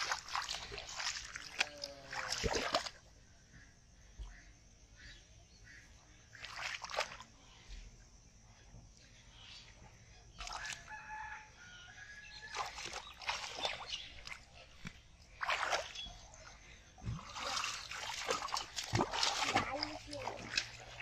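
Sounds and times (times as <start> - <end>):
muddy water splashing: 0.0 - 3.2, 6.2 - 7.5, 10.3 - 11.1, 12.3 - 21.0
rooster crowing: 10.6 - 12.8.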